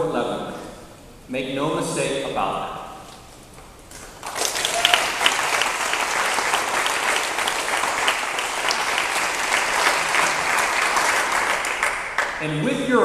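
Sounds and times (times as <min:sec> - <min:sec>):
audience applauding: 0:04.0 - 0:12.5.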